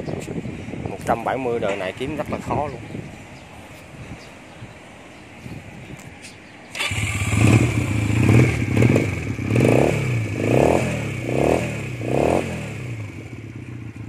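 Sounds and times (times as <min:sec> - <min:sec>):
motorcycle engine revving: 0:06.7 - 0:14.0
motorcycle engine starting: 0:06.7 - 0:14.0.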